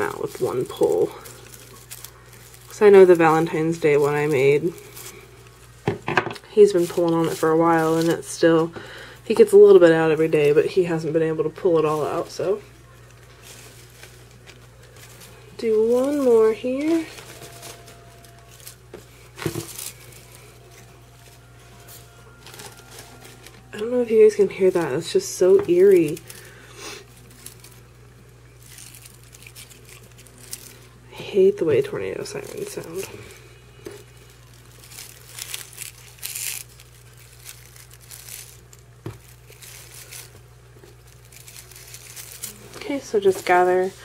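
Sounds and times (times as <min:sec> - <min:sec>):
plastic ball being handled: 0:00.0 - 0:08.7, 0:11.8 - 0:26.4, 0:31.8 - 0:44.0
paper shred rustling: 0:00.0 - 0:44.0
faint tornado sirens: 0:15.5 - 0:26.0.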